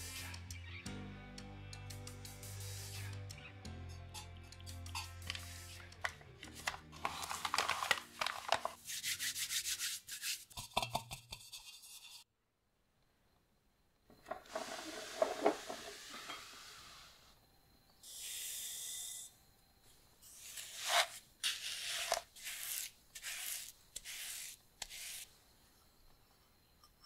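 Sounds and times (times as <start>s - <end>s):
flour rustling in metal pan: 6.5s - 10.8s, 20.4s - 25.3s
high pouring hiss: 14.3s - 17.3s.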